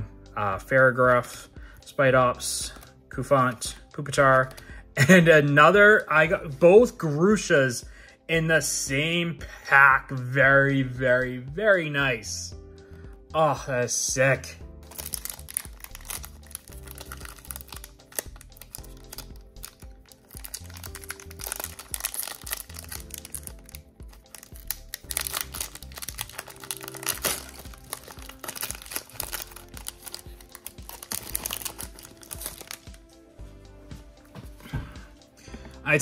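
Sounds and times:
background music with held notes: 0:00.0 - 0:36.0
foil wrapper crinkling and tearing: 0:14.8 - 0:33.0.

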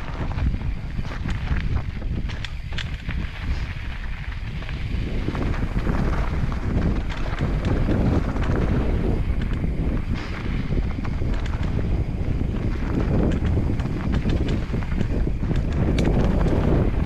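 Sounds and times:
bike clicks and rattles: 0:00.0 - 0:17.0
bike rumble: 0:00.0 - 0:17.0
wind buffeting microphone: 0:00.0 - 0:17.0.

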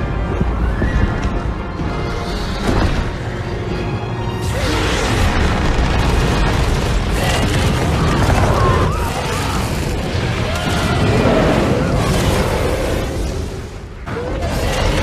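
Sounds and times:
dramatic film music: 0:00.0 - 0:15.0
booms and fire blasts: 0:04.4 - 0:15.0.

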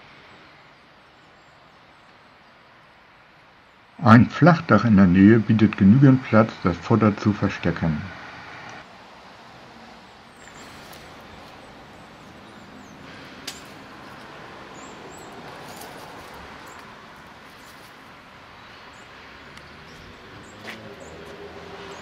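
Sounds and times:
distant city traffic: 0:00.0 - 0:22.0.

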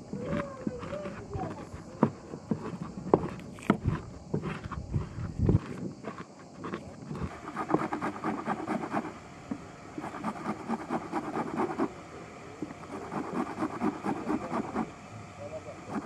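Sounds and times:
stone crushing walnuts: 0:00.0 - 0:09.0.

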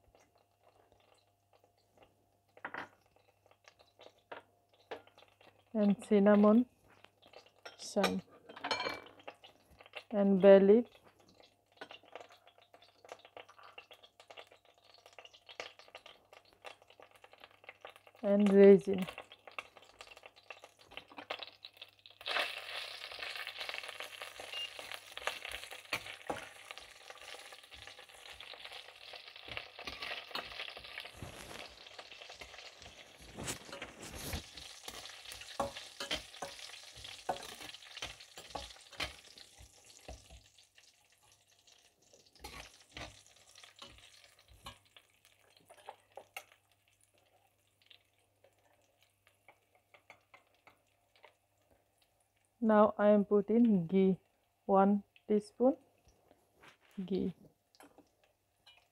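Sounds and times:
spices sizzling in hot oil: 0:00.0 - 0:58.9
metal spatula scraping pan: 0:29.5 - 0:40.5, 0:42.4 - 0:44.9.

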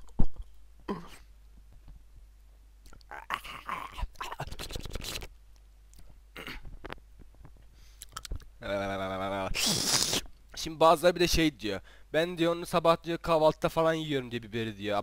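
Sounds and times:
man groaning: 0:03.1 - 0:04.5.

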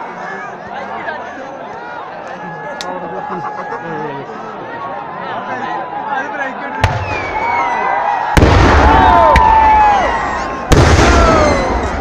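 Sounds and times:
voices shouting: 0:00.0 - 0:12.0
fireworks blasts with rumble: 0:08.4 - 0:12.0.

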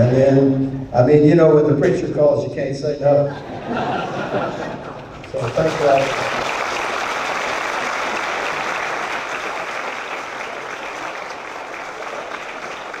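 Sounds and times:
large audience applauding: 0:04.8 - 0:13.0.

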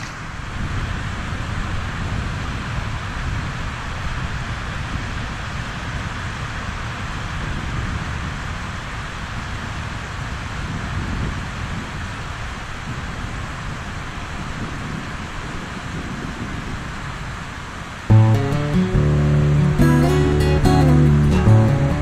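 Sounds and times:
wind buffeting microphone: 0:00.0 - 0:17.5
rain hissing: 0:18.1 - 0:22.0.

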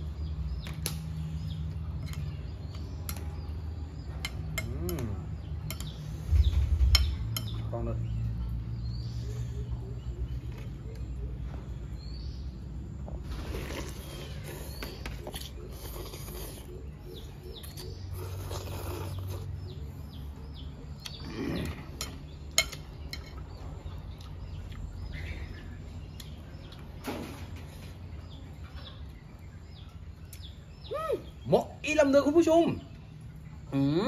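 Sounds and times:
small birds chirping: 0:00.0 - 0:34.0
person slurping and chewing: 0:18.2 - 0:19.4.

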